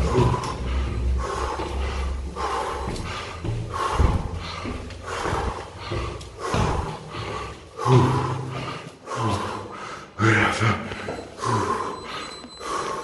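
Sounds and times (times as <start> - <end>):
man panting hard: 0.0 - 13.0.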